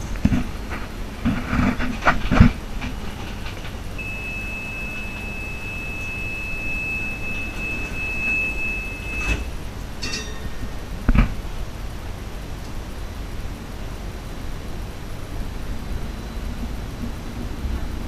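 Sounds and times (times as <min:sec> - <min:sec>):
tram low hum: 0:00.0 - 0:18.0
high warning beep: 0:04.0 - 0:10.7.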